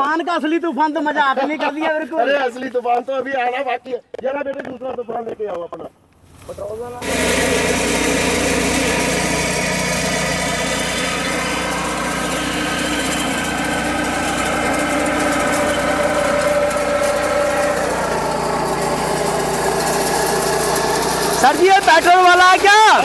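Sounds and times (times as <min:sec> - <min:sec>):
small engine running under load: 0:06.9 - 0:23.0.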